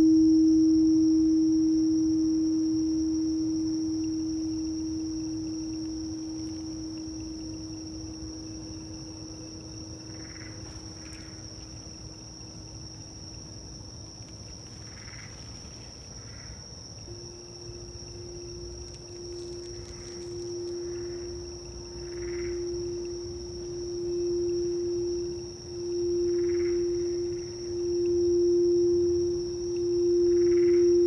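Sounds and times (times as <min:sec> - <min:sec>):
cricket trill: 0:00.0 - 0:31.0
singing bowl humming: 0:00.0 - 0:31.0
frogs calling: 0:02.0 - 0:31.0.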